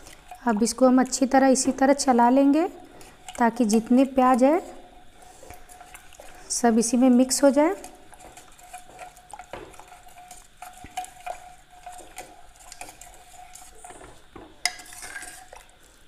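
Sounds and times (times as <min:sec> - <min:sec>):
metal spoon scraping pot: 0:14.7 - 0:15.6.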